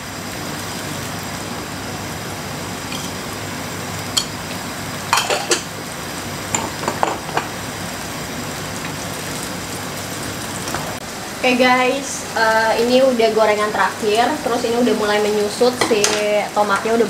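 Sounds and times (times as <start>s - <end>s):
fritters sizzling in frying pan: 0.0s - 17.0s
utensils clinking against pans: 2.9s - 3.2s, 4.2s - 4.4s, 5.1s - 5.7s, 6.5s - 7.5s.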